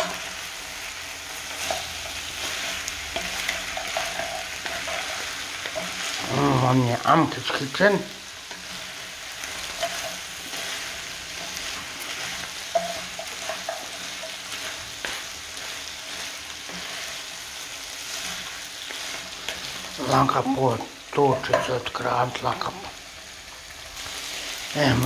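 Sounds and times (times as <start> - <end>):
vegetables sizzling in a frying pan: 0.0 - 25.0
wooden spatula stirring: 1.3 - 20.6.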